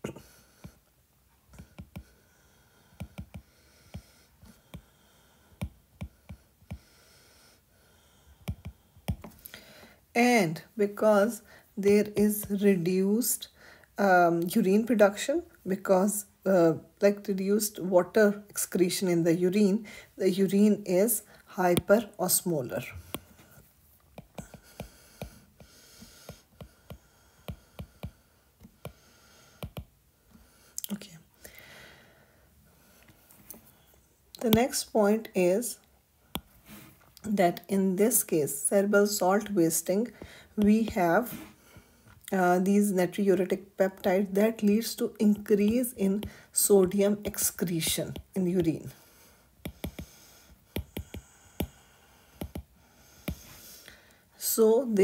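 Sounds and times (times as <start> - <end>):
stylus tapping on glass screen: 49.6 - 50.1, 50.7 - 51.8, 52.4 - 52.7.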